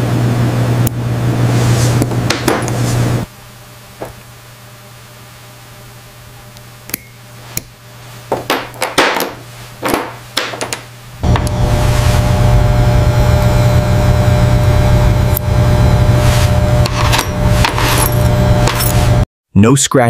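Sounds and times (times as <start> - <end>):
low hum: 10.9 - 19.2.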